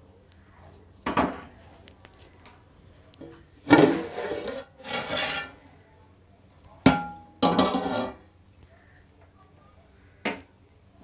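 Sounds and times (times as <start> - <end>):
metal lid scraping on pot: 3.7 - 5.6, 7.5 - 8.2
metal lid clanking: 6.9 - 8.2.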